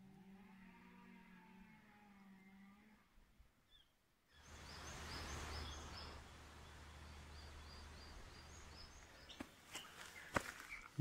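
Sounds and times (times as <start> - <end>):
bird chirping: 3.7 - 11.0
outdoor hiss: 4.4 - 9.4.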